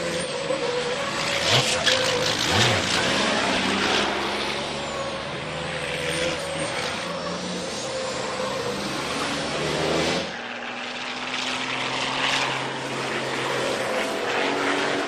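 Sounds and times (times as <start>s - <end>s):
truck engines at speed: 0.0s - 15.0s.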